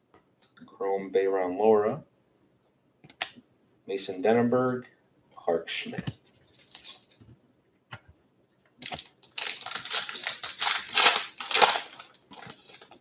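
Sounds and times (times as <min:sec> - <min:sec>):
cards rustling: 0:06.0 - 0:07.2, 0:08.8 - 0:13.0
wrapper tearing and crinkling: 0:08.8 - 0:13.0.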